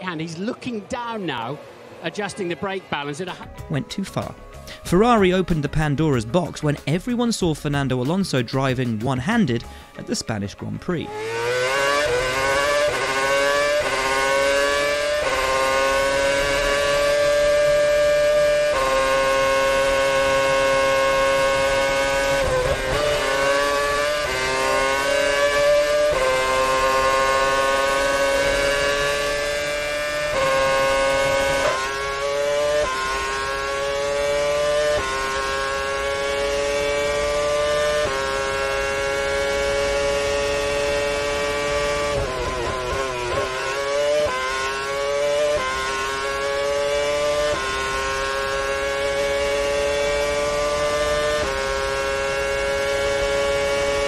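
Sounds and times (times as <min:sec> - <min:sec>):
racing car engine at high revs: 0:11.0 - 0:54.0.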